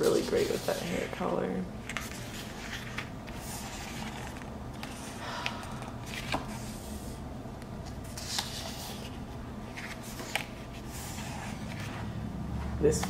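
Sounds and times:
paper pages rustling: 0:00.0 - 0:01.2, 0:01.8 - 0:05.2, 0:06.0 - 0:07.1, 0:07.8 - 0:12.2
low background hum: 0:00.0 - 0:13.0
page turning: 0:01.9 - 0:05.1, 0:07.8 - 0:12.1.

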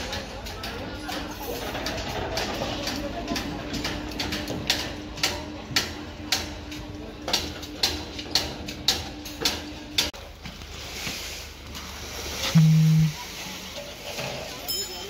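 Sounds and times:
machine hum: 0:12.5 - 0:13.2.

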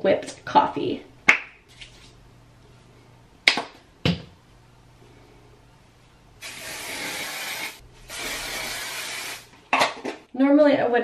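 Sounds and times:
aerosol can spraying: 0:06.4 - 0:09.5.

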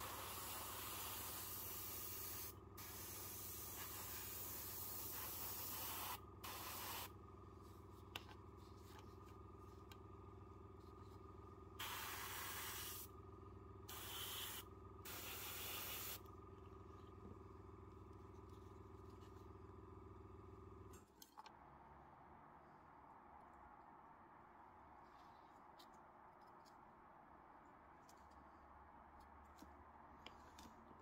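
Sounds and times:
airbrush spraying hiss: 0:00.0 - 0:07.1, 0:11.8 - 0:13.1, 0:13.9 - 0:16.2
air compressor humming: 0:00.0 - 0:18.3.

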